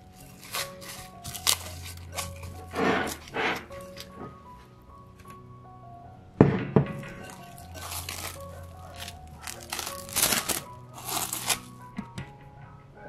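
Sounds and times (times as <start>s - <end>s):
cling film crinkling: 0.0s - 4.2s, 7.1s - 11.9s.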